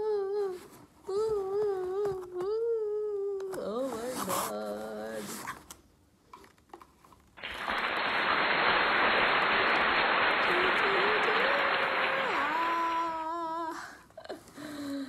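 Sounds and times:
crowd clapping: 7.4s - 13.3s
person whooping: 10.4s - 13.8s.

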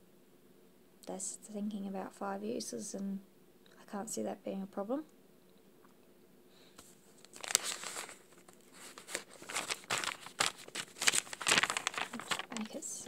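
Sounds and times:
crinkling and rustling: 6.8s - 13.0s.

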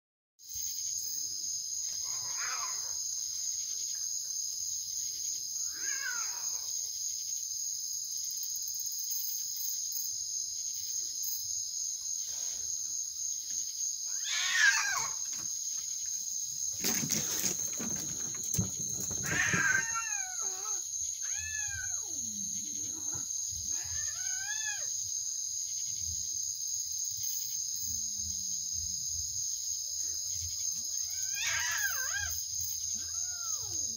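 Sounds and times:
night insect chorus: 0.4s - 33.9s
animal cries: 2.0s - 3.0s, 5.6s - 6.7s, 14.1s - 15.4s, 16.9s - 24.9s, 30.9s - 33.9s.

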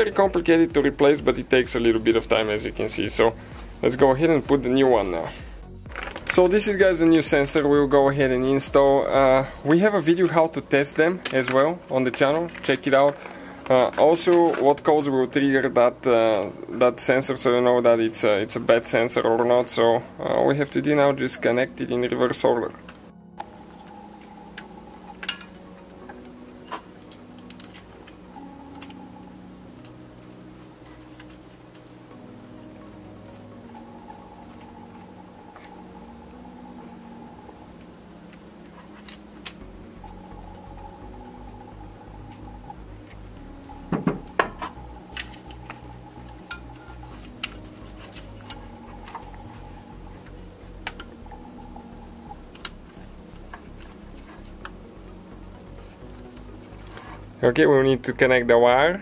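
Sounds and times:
steady background hum: 15.3s - 59.0s.

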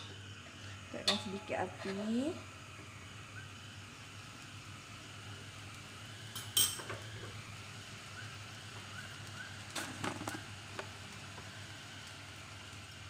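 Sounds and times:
steady low hum: 0.0s - 8.7s.

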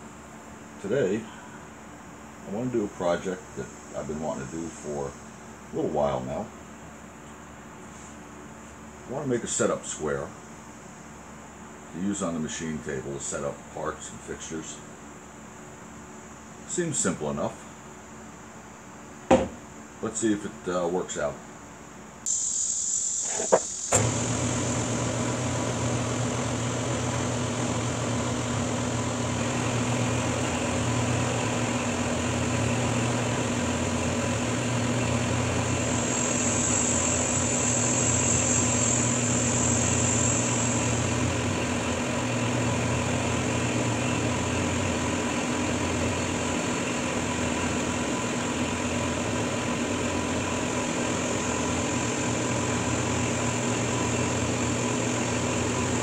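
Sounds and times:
machine hum and whine: 0.0s - 56.0s
milling machine cutting metal: 22.3s - 49.8s.

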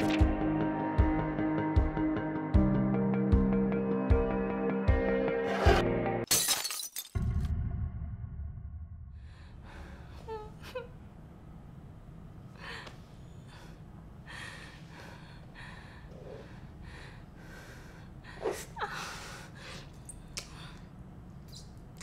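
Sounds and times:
music: 0.0s - 6.3s.

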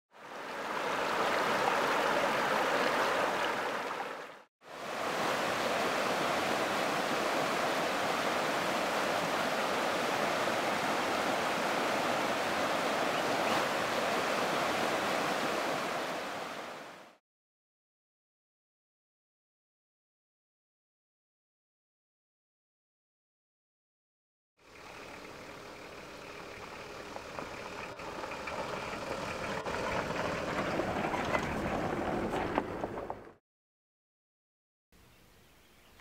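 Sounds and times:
river rushing over rocks: 0.2s - 17.2s.

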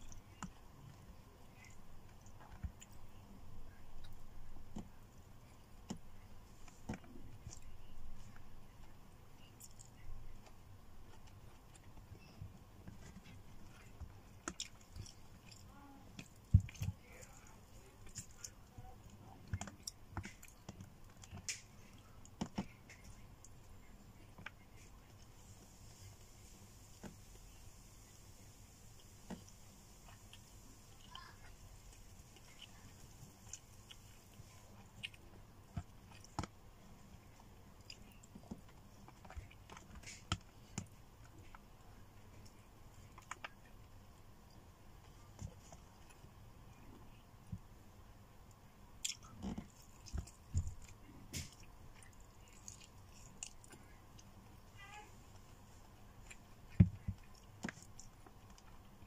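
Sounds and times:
faint chewing: 0.0s - 59.0s
person chewing: 13.0s - 23.2s, 32.2s - 36.5s, 49.0s - 54.4s.

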